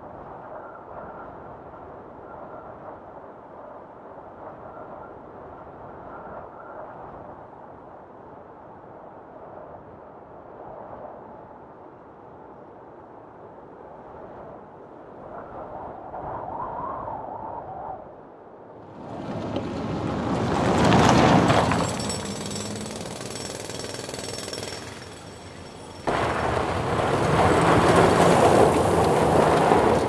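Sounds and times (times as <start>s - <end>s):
rattling machinery: 18.9s - 30.0s.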